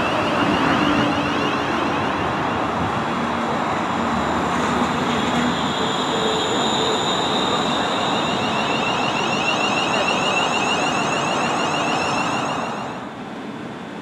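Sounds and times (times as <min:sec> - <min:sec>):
electric train inverter whine: 0:00.0 - 0:14.0.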